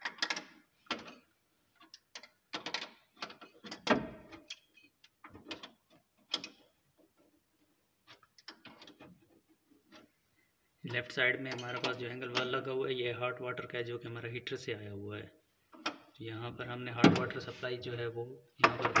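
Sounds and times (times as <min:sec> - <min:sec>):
metal nut clicking and scraping: 0:00.0 - 0:07.3.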